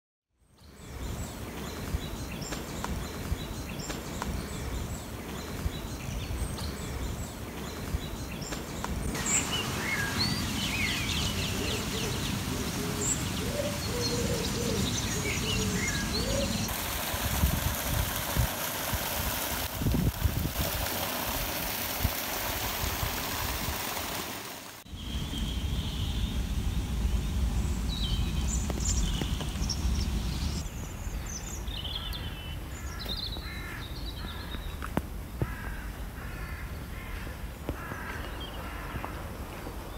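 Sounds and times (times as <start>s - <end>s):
birdsong chirps: 0.4s - 16.7s, 24.8s - 39.9s.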